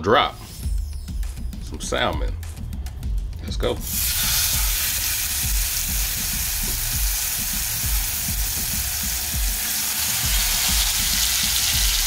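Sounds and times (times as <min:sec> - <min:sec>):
fish sizzling in hot oil: 0:03.8 - 0:12.0.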